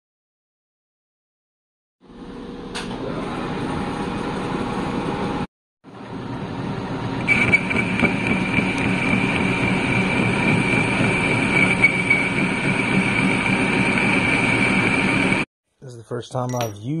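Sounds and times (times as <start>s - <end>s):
lathe running: 6.1s - 15.5s.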